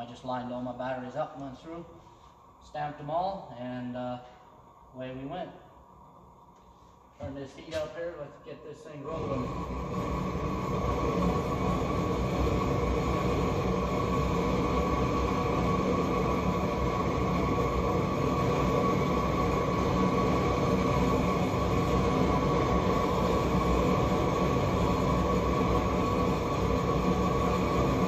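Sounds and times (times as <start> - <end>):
propane torch roaring: 0.0 - 28.0.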